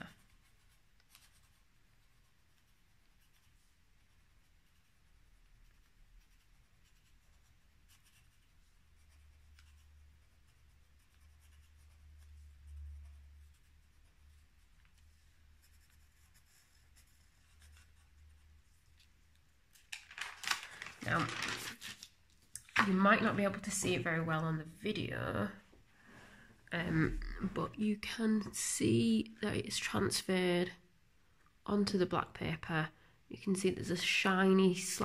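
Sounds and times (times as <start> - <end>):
pencil scratching on paper: 0.0 - 19.1.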